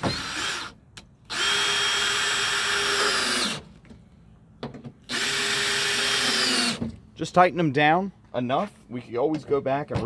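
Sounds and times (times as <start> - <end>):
cordless drill motor whine: 0.0 - 3.6, 5.1 - 6.8.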